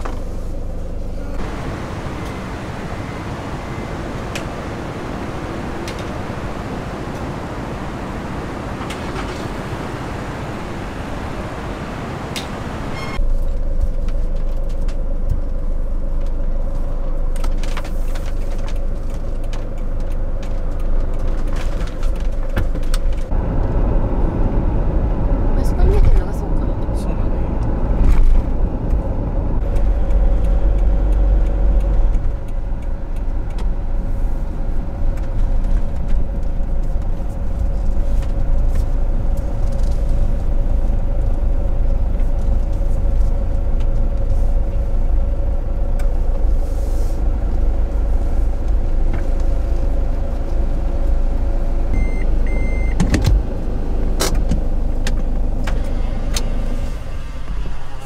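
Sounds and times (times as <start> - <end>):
road and engine rumble: 0.0 - 58.0
short high beeps: 12.9 - 13.2.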